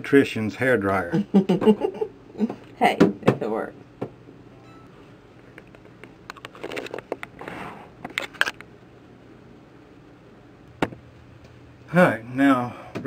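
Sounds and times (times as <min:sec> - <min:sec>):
clicks and rustling of wires: 0:05.5 - 0:08.7.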